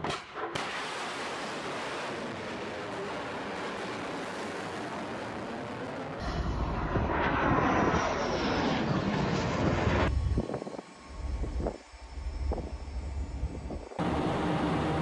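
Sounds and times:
missile roaring in flight: 1.3s - 11.8s
fighter jet passing overhead: 2.2s - 12.5s.

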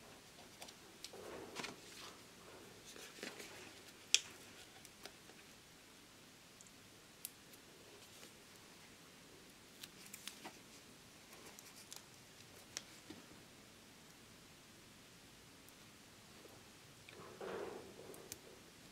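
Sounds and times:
paper rustling: 0.4s - 2.2s, 2.8s - 5.5s.

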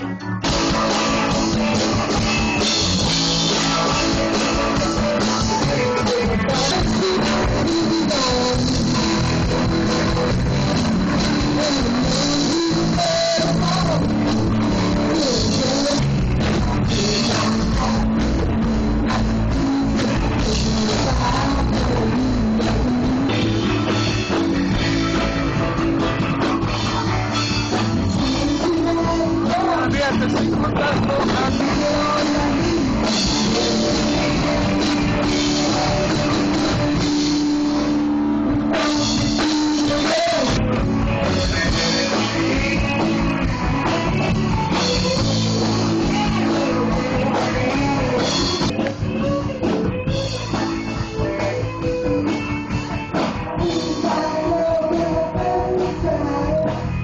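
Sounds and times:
drum kit: 0.0s - 57.0s
electric guitars: 0.0s - 57.0s
keyboard: 0.0s - 57.0s
person singing: 0.0s - 57.0s.

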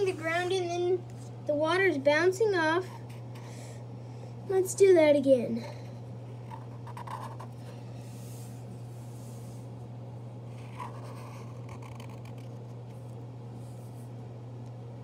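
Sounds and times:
marker scratching on paper: 6.5s - 7.5s, 10.5s - 12.6s.

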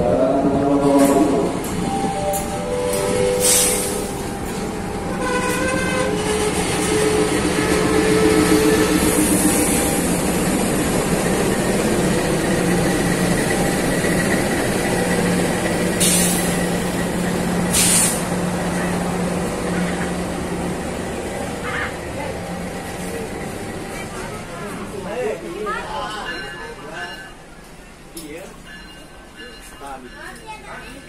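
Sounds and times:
diesel locomotive idling: 0.0s - 31.0s
compressed air hissing: 17.7s - 18.3s.

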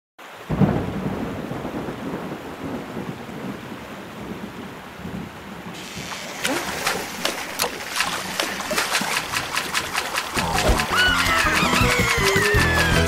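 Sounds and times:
steady rain: 0.2s - 13.0s
rolling thunder: 0.4s - 5.8s.

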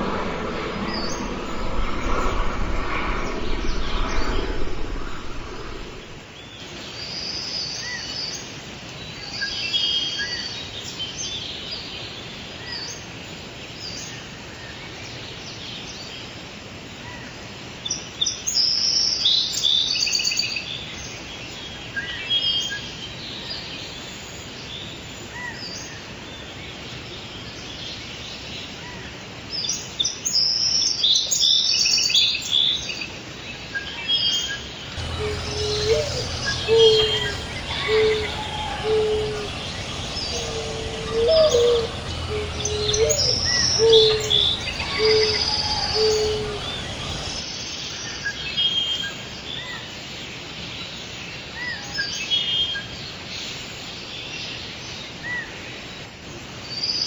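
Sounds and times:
faint outdoor hiss: 34.8s - 47.8s
songbirds chirping: 34.9s - 47.4s.

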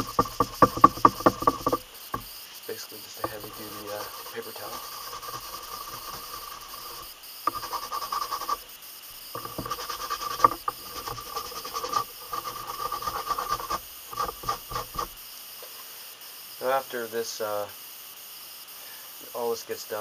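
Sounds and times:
paper towel rubbing on leather: 3.2s - 8.6s, 9.4s - 15.2s.

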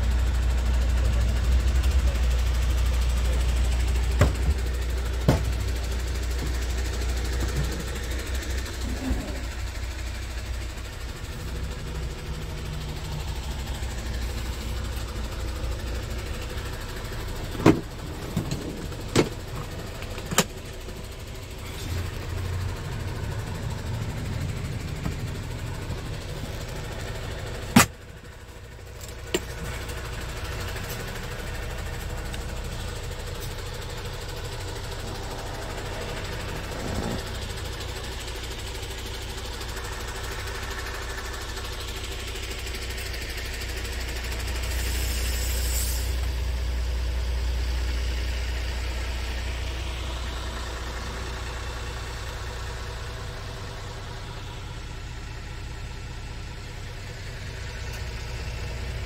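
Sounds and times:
diesel engine idling hum: 0.0s - 59.0s.

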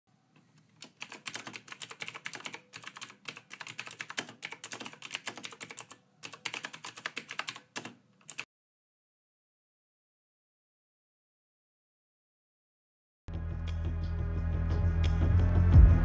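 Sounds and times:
computer keyboard typing: 0.8s - 8.5s.

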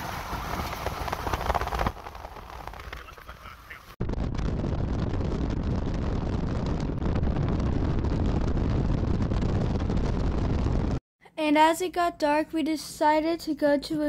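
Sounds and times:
wind blowing across microphone: 0.0s - 11.0s.

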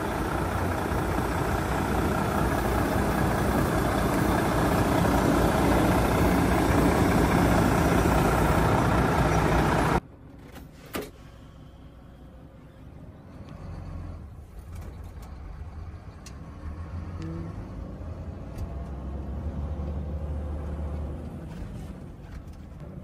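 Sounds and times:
diesel truck engine idling: 0.0s - 10.0s.

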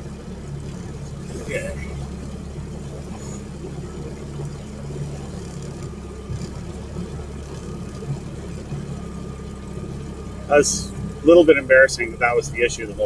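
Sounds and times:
outboard motor droning: 0.0s - 13.0s.

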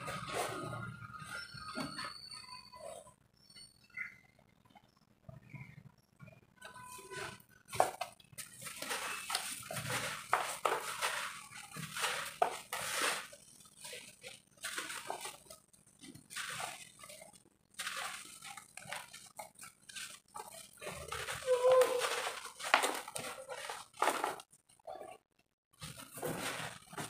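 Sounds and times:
dry dirt crumbling and pattering: 7.7s - 24.6s.

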